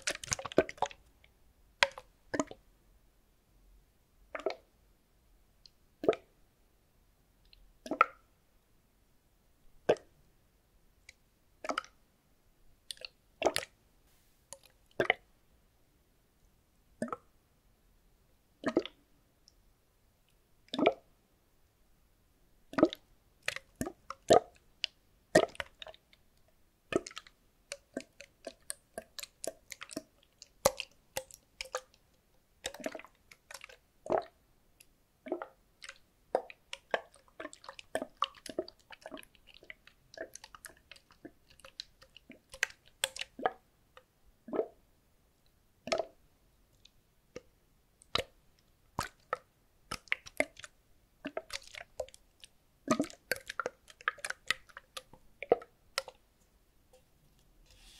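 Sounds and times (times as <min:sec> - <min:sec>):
liquid sloshing in plastic bottle: 0:00.0 - 0:01.0, 0:49.0 - 0:56.2.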